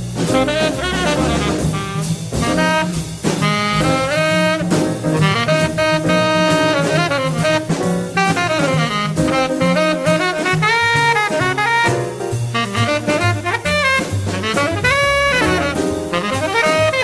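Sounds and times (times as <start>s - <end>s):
drums and cymbals: 0.0s - 17.0s
tenor saxophone solo: 0.2s - 17.0s.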